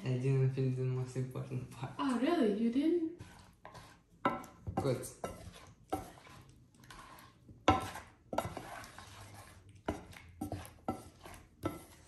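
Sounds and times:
spatula scraping frying pan: 0:03.0 - 0:12.0.

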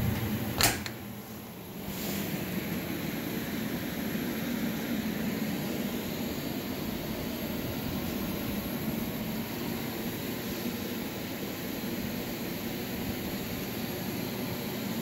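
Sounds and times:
industrial blower whirring: 0:00.0 - 0:15.0.

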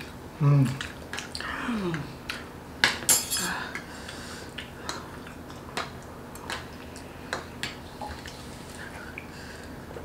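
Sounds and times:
cutlery clinking on plates: 0:03.1 - 0:03.5.

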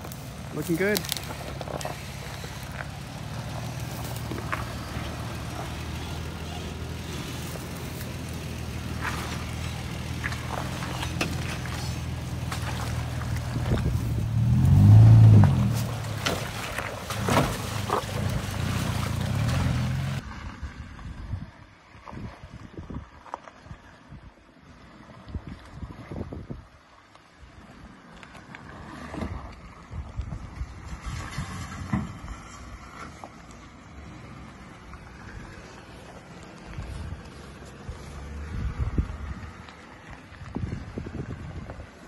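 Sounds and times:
pickup engine revving: 0:00.0 - 0:20.2
tyres crunching twigs and stones: 0:00.0 - 0:20.2
outdoor background: 0:00.0 - 0:42.0.

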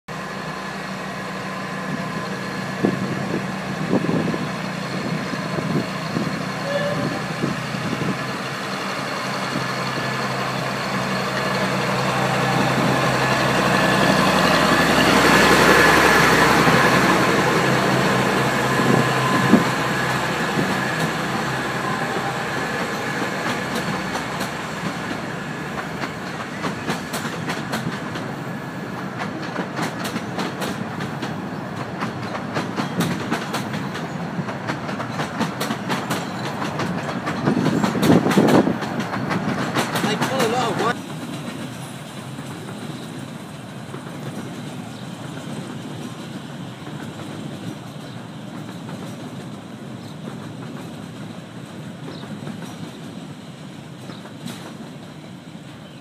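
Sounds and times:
diesel locomotive running: 0:00.1 - 0:56.0
wheels clicking over rail joints: 0:05.0 - 0:56.0.

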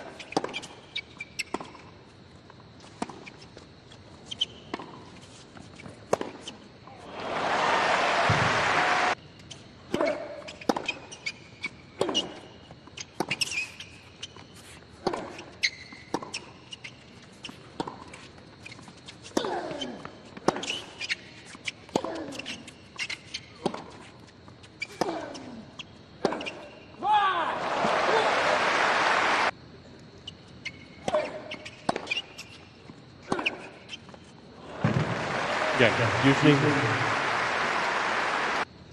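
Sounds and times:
crowd applause: 0:07.0 - 0:09.2, 0:27.6 - 0:29.5, 0:34.6 - 0:38.6
tennis ball bouncing: 0:08.2 - 0:09.0, 0:15.0 - 0:16.8, 0:17.4 - 0:18.2, 0:31.1 - 0:32.5, 0:34.8 - 0:35.4
hushed crowd: 0:34.6 - 0:38.6
tennis balls struck by rackets: 0:34.7 - 0:35.4.

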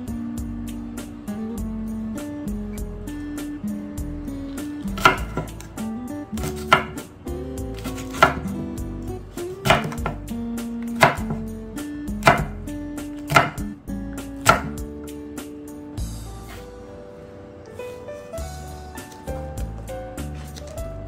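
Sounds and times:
soft background music: 0:00.0 - 0:21.0
knife chopping on wooden board: 0:04.9 - 0:05.7, 0:06.4 - 0:07.0, 0:07.8 - 0:08.5, 0:09.4 - 0:11.5, 0:12.2 - 0:12.6, 0:13.2 - 0:13.7, 0:14.4 - 0:14.8.

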